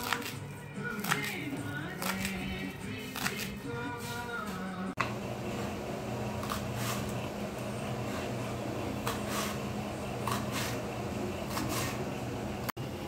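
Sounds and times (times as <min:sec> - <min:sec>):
steady low hum: 0:03.8 - 0:13.0
knife slicing on wooden board: 0:06.4 - 0:07.2, 0:08.0 - 0:12.1.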